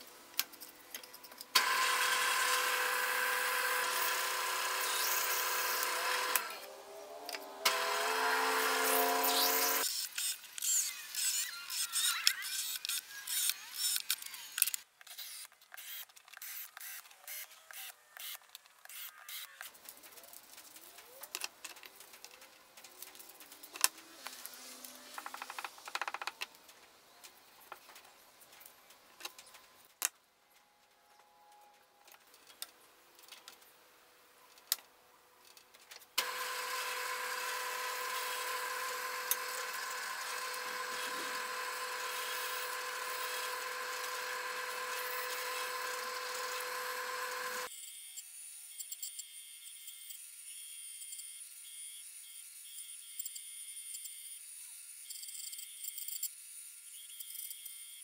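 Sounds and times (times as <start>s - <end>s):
drill press humming: 1.6s - 9.8s, 36.2s - 47.7s
band saw: 1.6s - 10.0s, 36.2s - 47.7s.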